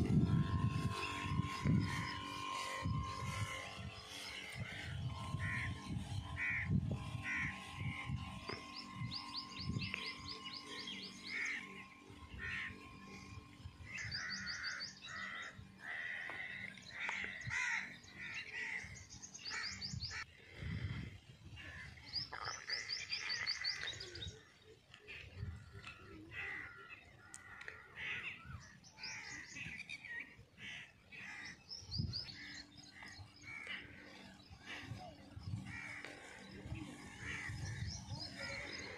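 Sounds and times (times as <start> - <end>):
birds chirping trills: 0.0 - 38.9
crows cawing: 4.6 - 8.0, 11.3 - 11.8, 12.4 - 13.3, 13.9 - 20.9, 21.6 - 24.3, 25.9 - 29.7, 30.6 - 38.9.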